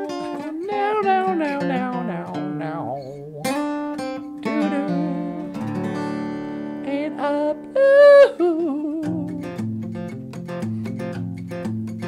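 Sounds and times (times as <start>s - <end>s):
person singing long notes: 0.0s - 3.6s, 4.4s - 5.8s, 6.8s - 9.5s
acoustic guitar strumming: 0.0s - 12.0s.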